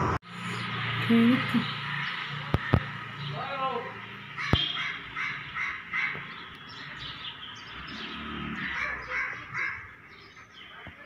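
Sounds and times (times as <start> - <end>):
crow cawing: 1.8 - 3.0, 4.3 - 7.1, 8.4 - 10.0.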